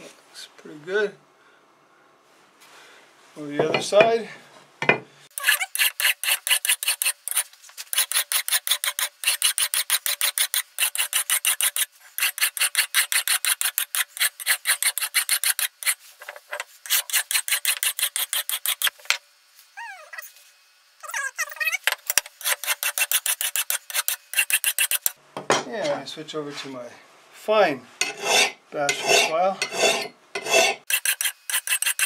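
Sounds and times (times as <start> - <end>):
file rasping on steel: 5.3 - 19.0, 22.1 - 25.2, 28.0 - 32.0.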